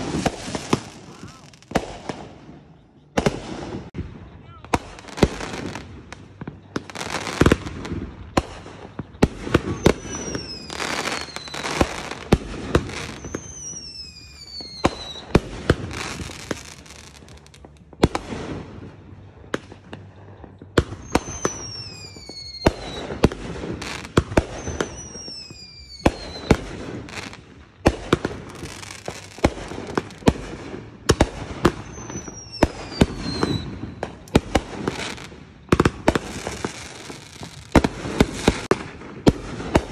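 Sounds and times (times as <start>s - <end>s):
firework bangs: 0.0s - 39.9s
firework crackling: 0.0s - 39.9s
falling firework whistles: 9.3s - 17.5s, 20.8s - 27.4s, 28.4s - 30.3s, 31.2s - 38.7s.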